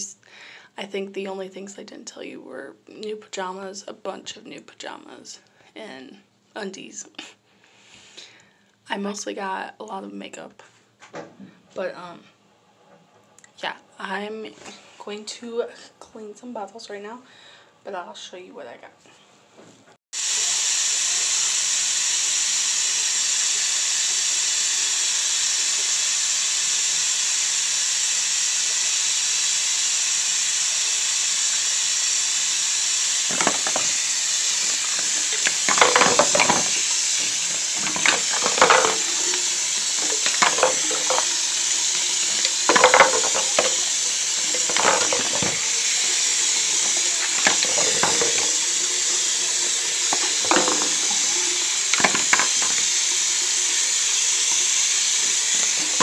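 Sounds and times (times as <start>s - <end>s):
water running into sink: 33.0s - 56.0s
baby bottles clattering in sink: 33.3s - 53.1s, 55.6s - 56.0s.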